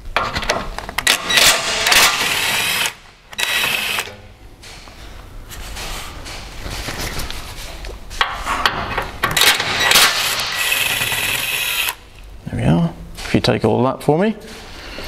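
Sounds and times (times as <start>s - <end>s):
cordless drill whining: 2.2s - 4.1s, 10.5s - 12.0s.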